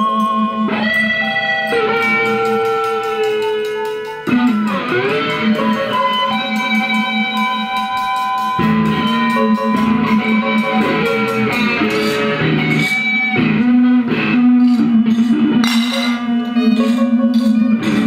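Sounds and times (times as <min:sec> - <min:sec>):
electric guitar ringing notes: 0:00.0 - 0:18.0.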